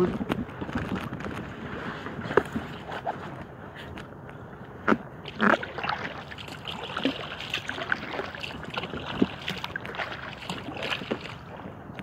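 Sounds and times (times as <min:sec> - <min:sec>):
paddle splashing water: 0:04.9 - 0:12.0.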